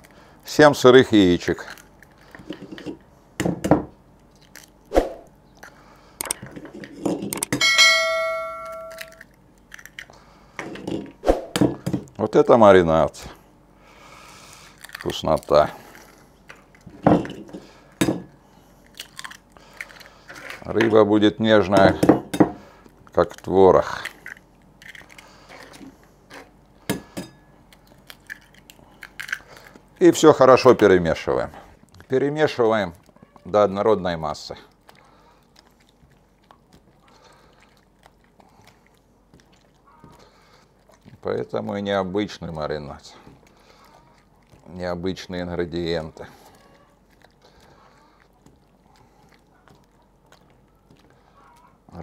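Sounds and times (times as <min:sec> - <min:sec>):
bowl ringing: 0:07.6 - 0:09.2.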